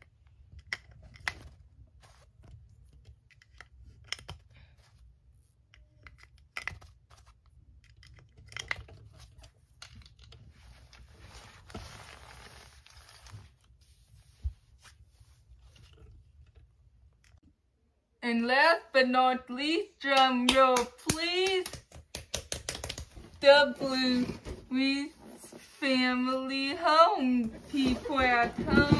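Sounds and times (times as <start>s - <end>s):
fabric rustling: 10.6s - 16.3s.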